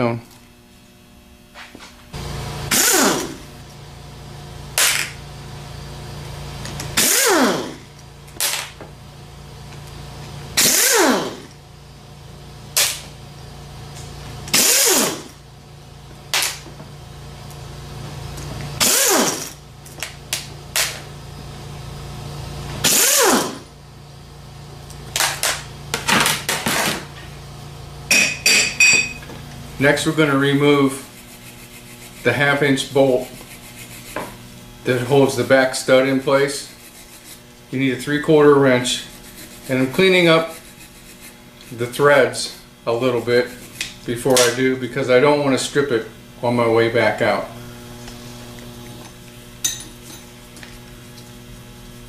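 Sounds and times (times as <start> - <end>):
impact wrench bursts: 2.7 - 3.4, 6.9 - 7.8, 10.6 - 11.5, 14.5 - 15.4, 18.8 - 19.6, 22.8 - 23.7.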